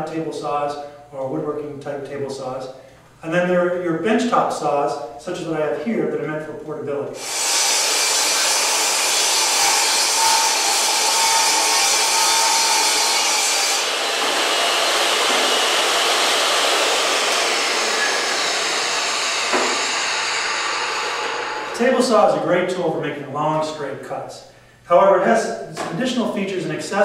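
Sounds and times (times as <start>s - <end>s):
table saw cutting wood: 7.2s - 22.4s
saw blade coasting down: 8.0s - 21.8s.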